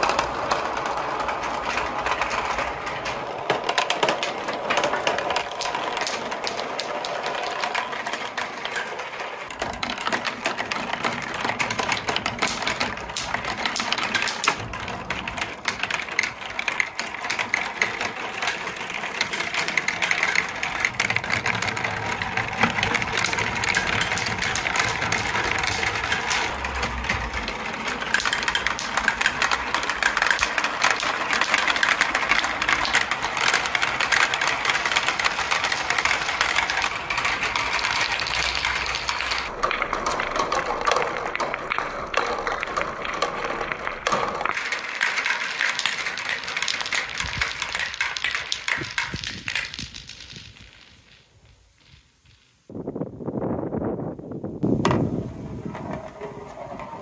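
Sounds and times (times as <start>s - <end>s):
balls rolling on plastic marble run: 0.0s - 57.0s.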